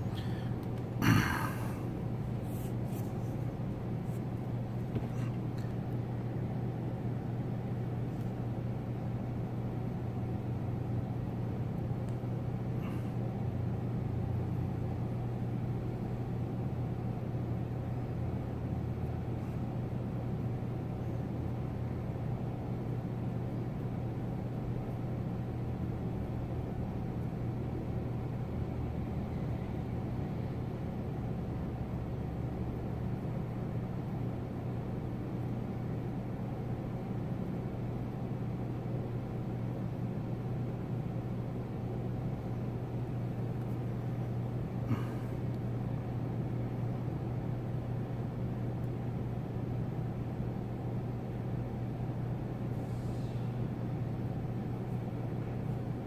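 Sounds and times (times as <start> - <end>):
low droning hum: 0.0 - 56.0.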